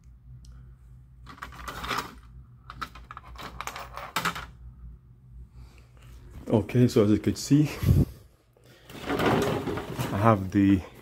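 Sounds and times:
small plastic parts clattering: 1.2s - 4.5s, 8.9s - 10.4s.

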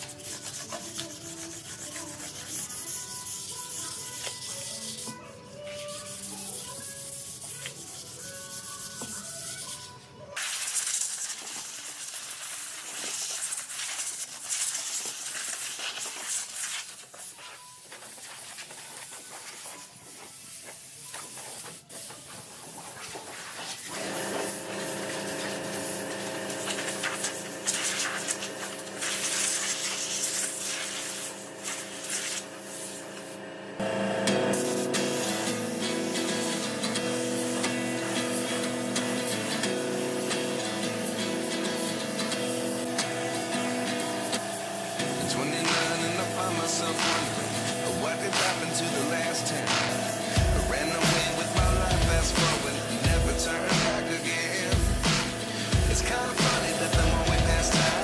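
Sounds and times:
background music: 0.0s - 10.2s, 33.8s - 58.0s
sandpaper rubbing on wood: 0.0s - 33.4s, 34.5s - 58.0s.

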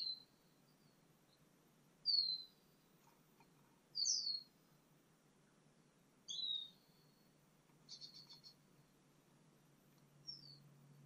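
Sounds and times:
sparrow chirps: 0.0s - 3.1s, 3.9s - 4.6s, 6.2s - 8.9s, 10.2s - 10.7s.

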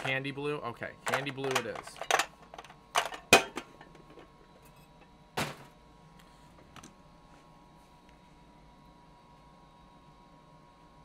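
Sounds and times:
containers clicking on a desk: 1.1s - 3.6s.

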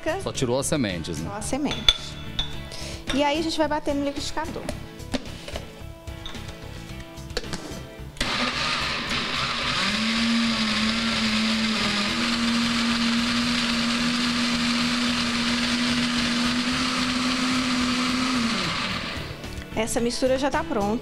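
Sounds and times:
blender running: 8.2s - 19.5s.

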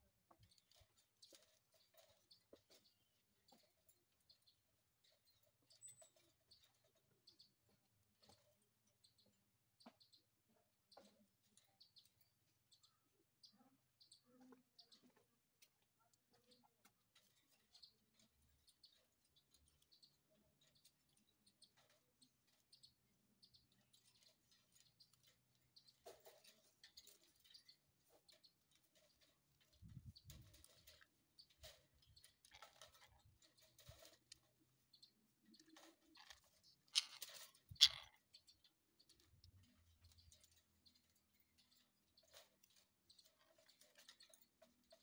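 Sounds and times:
parakeets scratching on wire cage: 23.8s - 45.0s.

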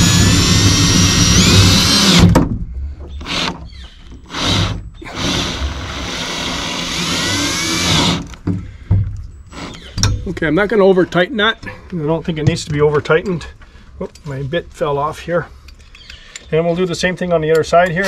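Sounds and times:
power drill motor whining: 0.0s - 2.4s, 3.2s - 8.4s.

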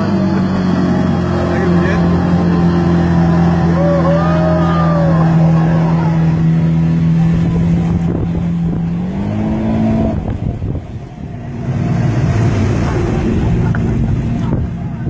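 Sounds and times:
speedboat engine: 0.0s - 15.0s
water noise: 0.0s - 15.0s
person whooping: 3.6s - 6.2s
wind noise: 7.0s - 15.0s.

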